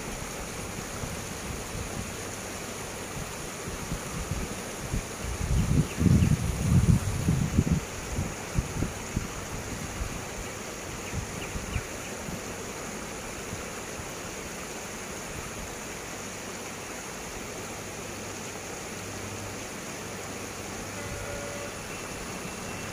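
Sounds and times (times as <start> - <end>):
wind rushing on microphone: 3.2 - 12.5.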